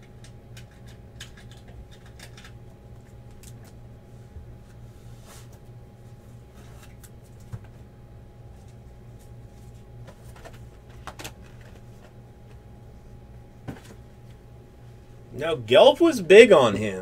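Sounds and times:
low hum: 0.0 - 17.0.

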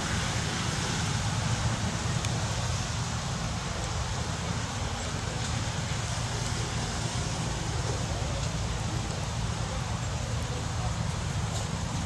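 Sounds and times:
outdoor hiss: 0.0 - 12.0.

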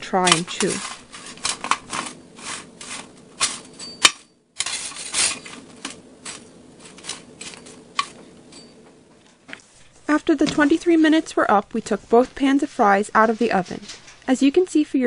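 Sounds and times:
metal spatula scraping baking sheet: 0.0 - 8.8, 13.2 - 14.2.

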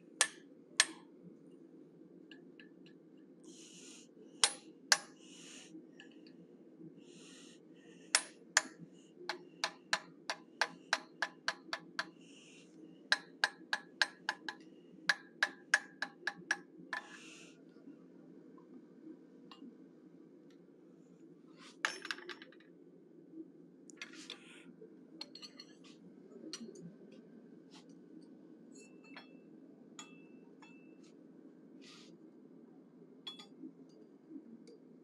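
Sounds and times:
hammer tapping chisel on steel: 0.2 - 1.0, 4.4 - 5.2, 8.1 - 12.2, 13.1 - 17.2.

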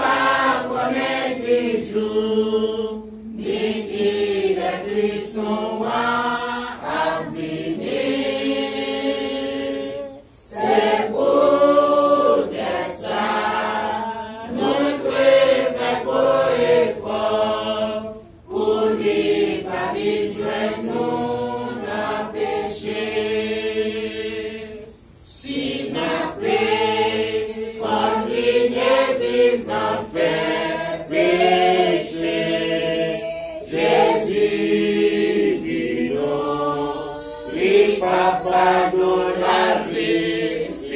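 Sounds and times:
congregation singing a hymn: 0.0 - 40.9.

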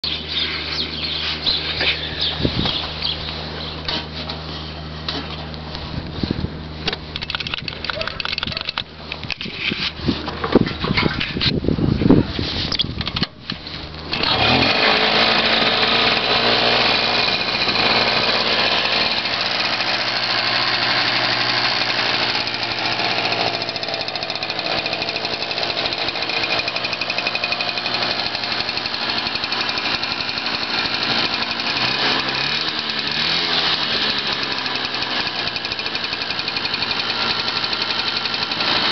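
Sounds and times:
two-stroke motorcycle engine idling: 14.1 - 38.9.

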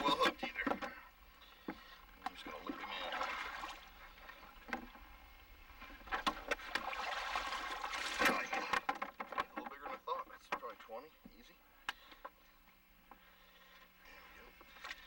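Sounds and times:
water splashing and sloshing: 0.0 - 10.8.

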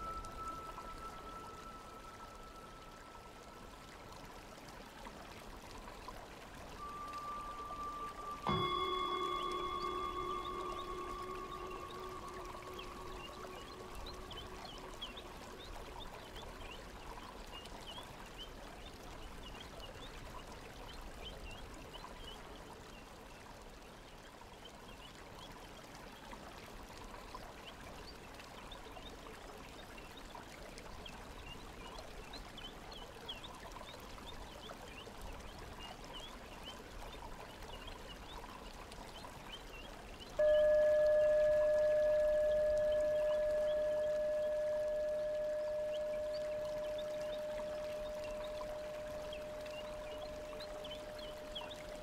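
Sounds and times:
faint ringing tone: 0.0 - 22.6, 39.7 - 52.0
stream trickling and bubbling: 0.0 - 52.0.

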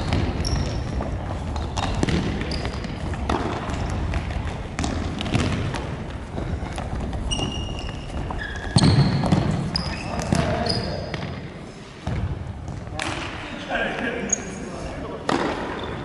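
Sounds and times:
ball kicked and bouncing: 0.0 - 9.6
shoe squeaks on floor: 0.3 - 3.0, 7.2 - 11.2, 14.2 - 14.7, 15.7 - 16.0.

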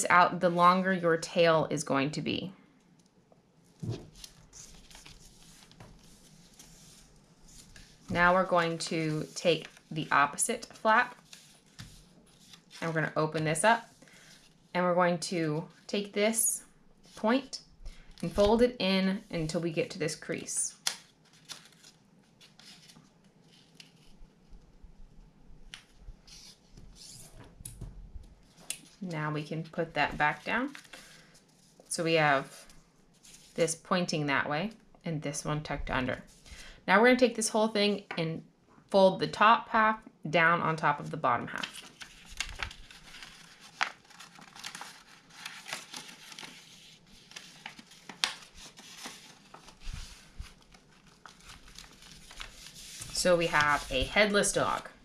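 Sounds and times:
paper folding and creasing: 3.8 - 13.0, 20.8 - 24.8, 25.7 - 29.0, 41.6 - 54.8.

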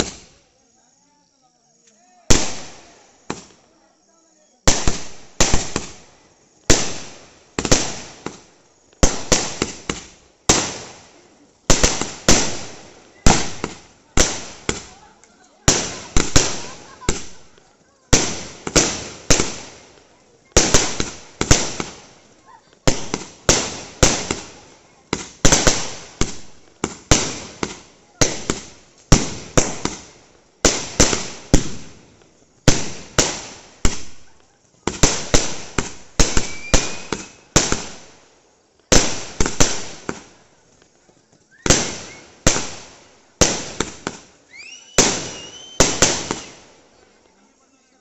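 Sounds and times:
fireworks bangs: 0.0 - 0.6, 2.0 - 47.4
faint rising whistles: 44.5 - 45.8.

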